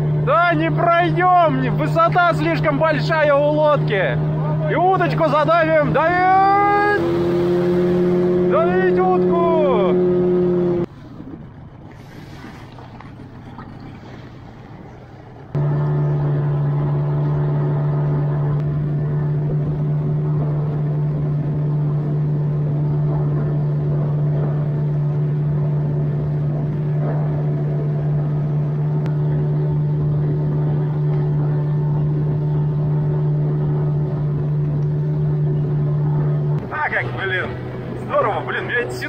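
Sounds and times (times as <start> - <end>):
outboard motor drone: 0.0 - 39.0
wind: 0.0 - 39.0
hiss of water: 11.9 - 13.1.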